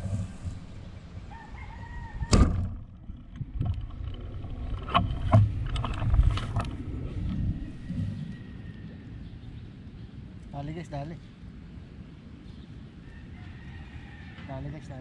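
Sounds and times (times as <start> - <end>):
rooster crowing: 1.2 - 2.4, 7.8 - 9.2, 13.0 - 15.0.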